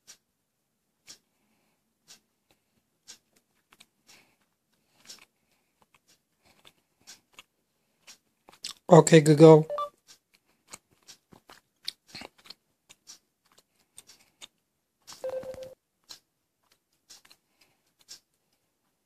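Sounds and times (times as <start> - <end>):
fingers tapping phone screen: 9.7 - 18.4.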